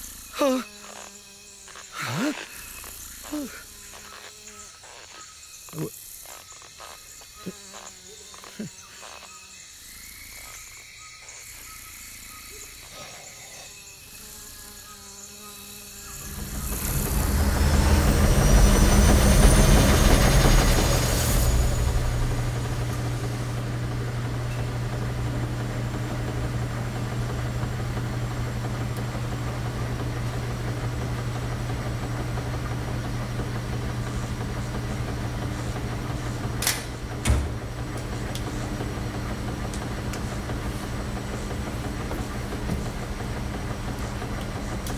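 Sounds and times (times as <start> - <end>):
washing machines humming: 15.9 - 44.9
rushing swell with deep rumble: 16.2 - 23.9.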